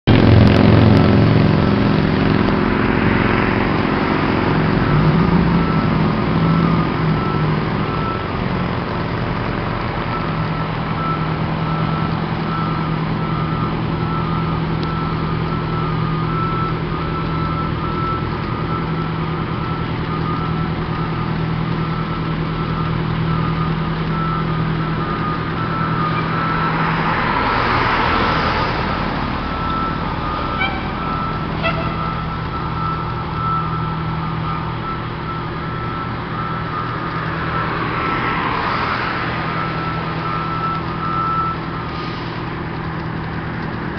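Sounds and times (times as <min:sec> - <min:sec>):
diesel engine running: 0:00.0 - 0:43.9
reversing beeper: 0:00.1 - 0:42.4
car passing by: 0:37.4 - 0:39.8.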